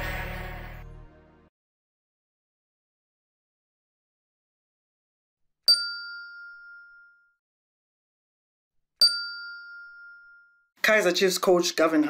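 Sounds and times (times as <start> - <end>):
bright bell-like ding: 5.7 - 7.4, 9.0 - 10.6.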